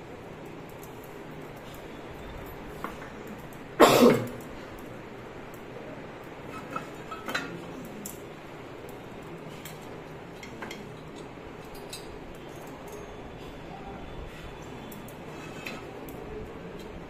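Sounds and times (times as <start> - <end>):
metal clinks and taps: 9.6 - 13.2.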